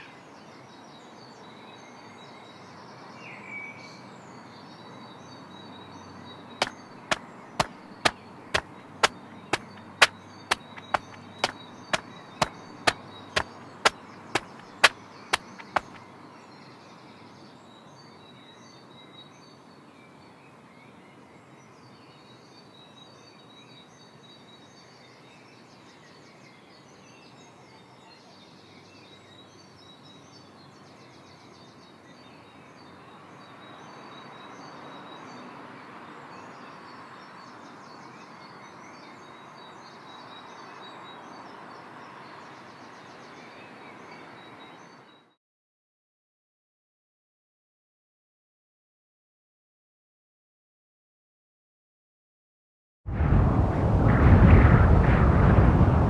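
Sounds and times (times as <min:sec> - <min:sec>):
outdoor ambience: 0:05.6 - 0:17.0, 0:53.1 - 0:56.0
sharp knocks: 0:07.6 - 0:16.0.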